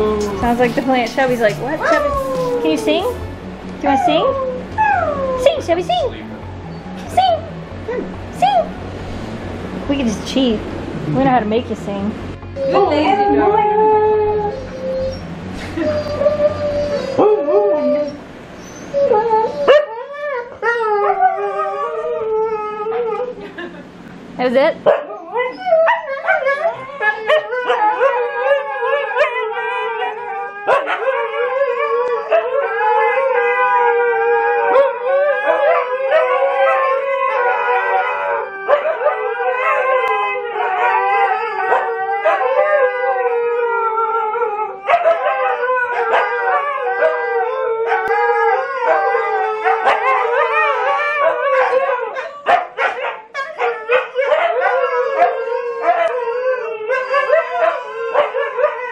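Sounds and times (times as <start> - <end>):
dogs howling together: 0.0 - 3.2, 3.8 - 5.7, 12.5 - 23.4, 24.9 - 58.9
dogs yipping and barking: 14.2 - 23.6, 24.8 - 58.9.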